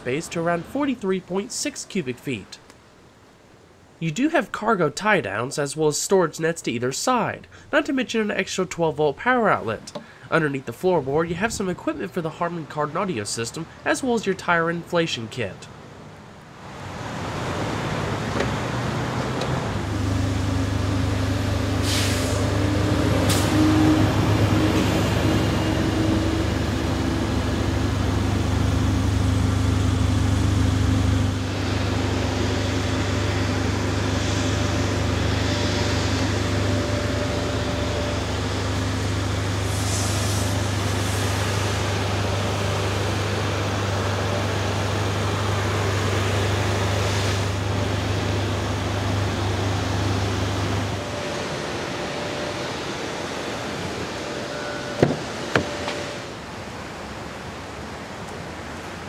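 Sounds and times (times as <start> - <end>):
vehicle engine idling: 18.5 - 57.0.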